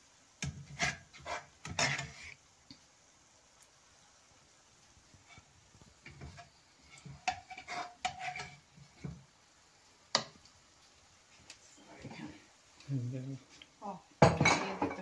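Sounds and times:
spoon scraping a cooking pot: 0.4 - 2.4, 5.2 - 9.2.

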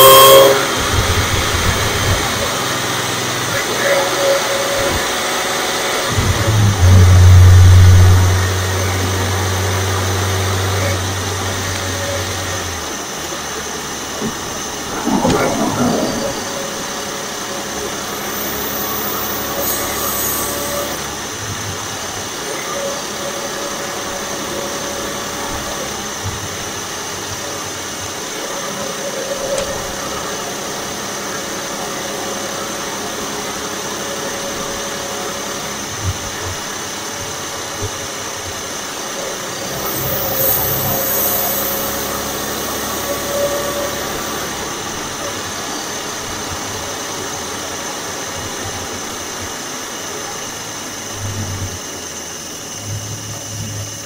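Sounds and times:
car engine and supercharger: 0.0 - 54.0
road noise: 0.0 - 54.0
hiss rush: 14.2 - 20.9.

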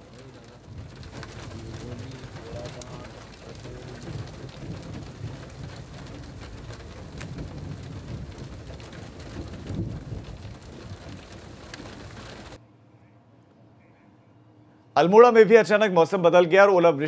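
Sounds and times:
rain falling: 0.0 - 12.6
low rumble: 0.0 - 13.1.

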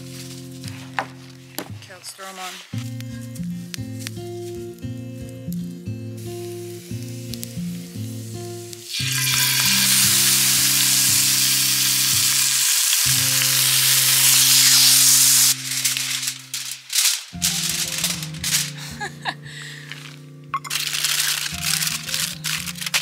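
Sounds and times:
soft background music: 0.0 - 23.0
steak sizzling in a skillet: 6.2 - 18.8, 20.7 - 23.0.

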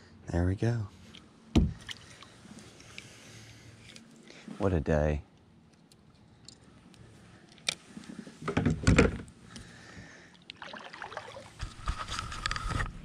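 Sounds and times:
paddle splashing in water: 10.5 - 11.9.

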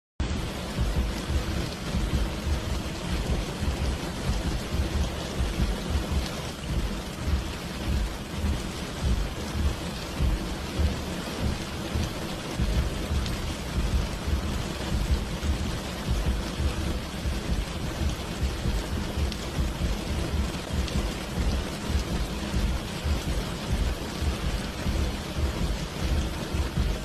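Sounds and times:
deep rumble: 0.2 - 27.0
heavy rainfall: 0.2 - 27.0.

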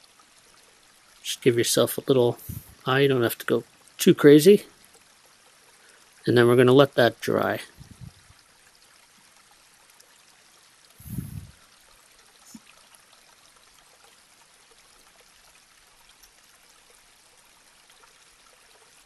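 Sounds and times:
room tone hiss: 1.2 - 4.7
dull low thump: 7.8 - 8.2.

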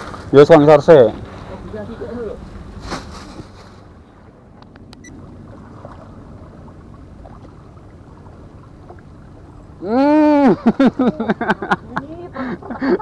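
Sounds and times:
person shouting: 9.8 - 10.6.

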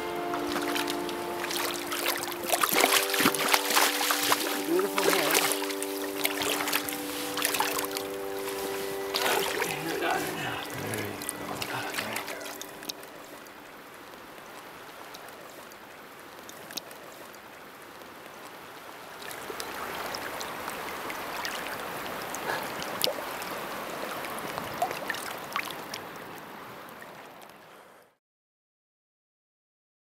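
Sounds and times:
shallow river water flowing: 0.0 - 28.1
hands swishing through water: 0.4 - 13.4.

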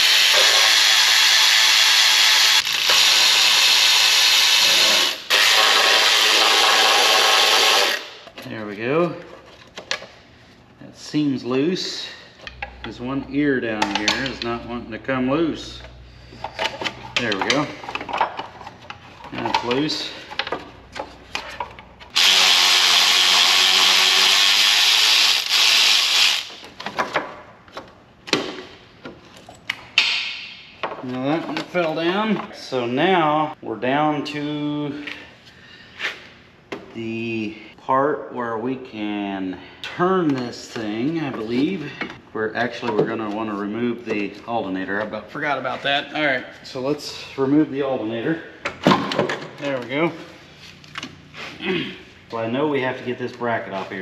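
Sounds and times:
cordless ratchet running: 0.0 - 8.1, 22.2 - 26.6
tool handling clicks and knocks: 13.7 - 14.6, 15.8 - 22.1, 26.6 - 32.5.

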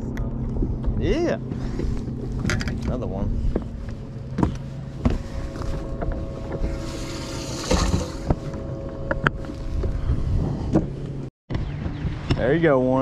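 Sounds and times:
low rumble with faint hum: 0.0 - 12.6
handling knocks and clicks: 2.4 - 3.0
wind on the microphone: 5.5 - 11.0.

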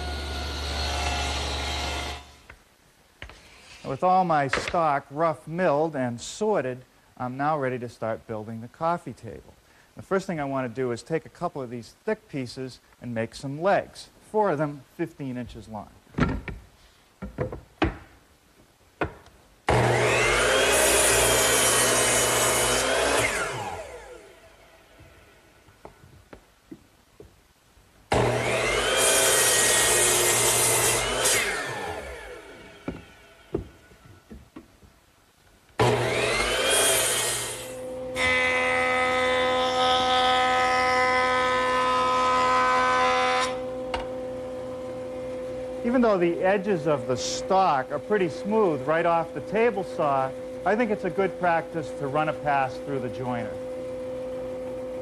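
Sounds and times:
power saw cutting board: 0.0 - 2.4, 19.7 - 24.4, 28.1 - 34.4, 35.8 - 53.7
wood knocks: 17.2 - 18.2, 19.0 - 19.3.

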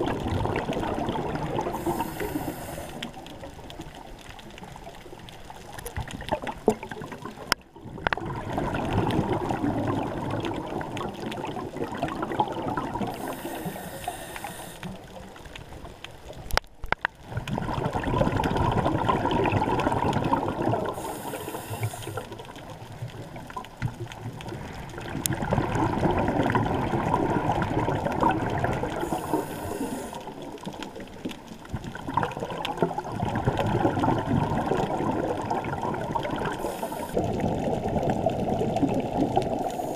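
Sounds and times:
bubbling exhalation underwater: 0.0 - 2.5, 6.1 - 13.4, 17.3 - 21.2, 24.5 - 31.2, 31.8 - 39.9
regulator hissing: 1.8 - 3.0.

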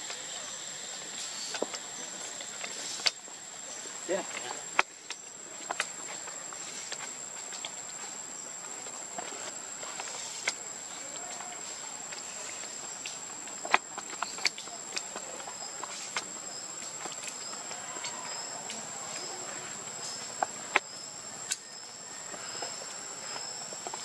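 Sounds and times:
insects droning: 0.0 - 24.0.

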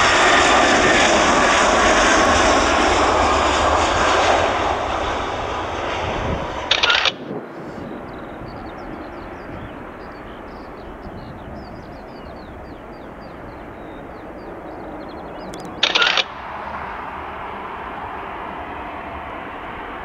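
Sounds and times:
distant airfield rumble: 0.0 - 20.0
small birds chirping: 6.7 - 16.3.

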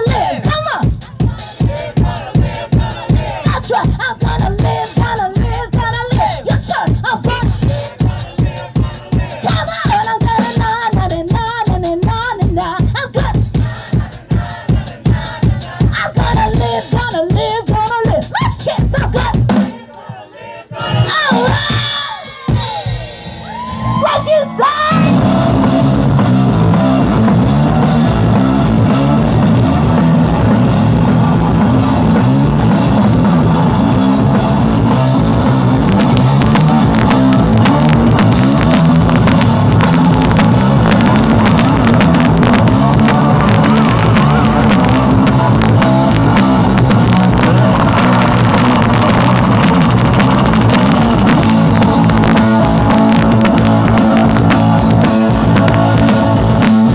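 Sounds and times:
people yelling: 20.1 - 32.1, 36.3 - 56.6
blues rock band playing: 20.8 - 56.9.

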